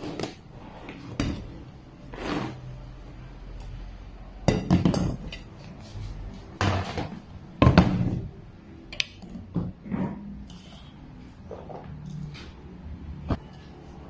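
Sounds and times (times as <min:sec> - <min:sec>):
steel bowl pushed across table: 0:02.1 - 0:02.7.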